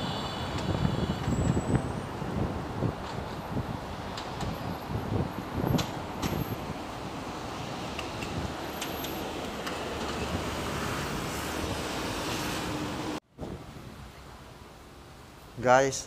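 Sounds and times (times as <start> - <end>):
road traffic noise: 0.0 - 16.0
wind on microphone: 0.1 - 8.7.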